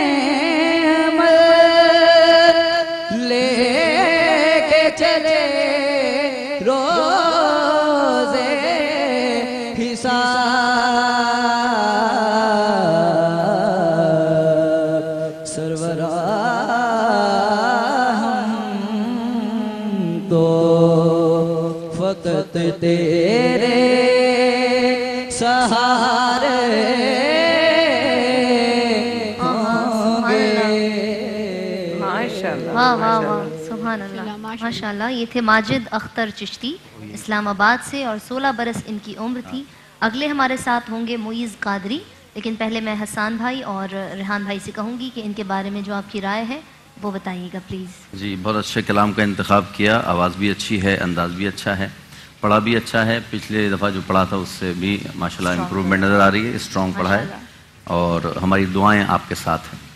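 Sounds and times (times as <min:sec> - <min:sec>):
boy singing into a microphone: 0:00.0 - 0:35.9, 0:55.4 - 0:55.9.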